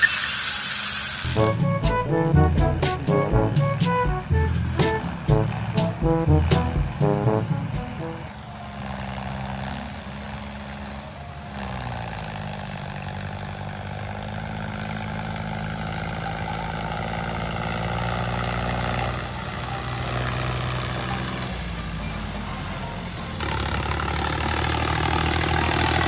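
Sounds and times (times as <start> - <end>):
toy electric motor droning: 0.0 - 1.8, 4.3 - 12.1.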